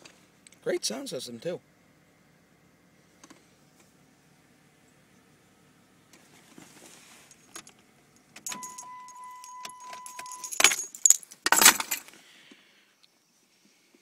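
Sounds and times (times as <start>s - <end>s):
car keys jangling: 7.2s - 12.1s
electronic car warning tone: 8.5s - 10.5s.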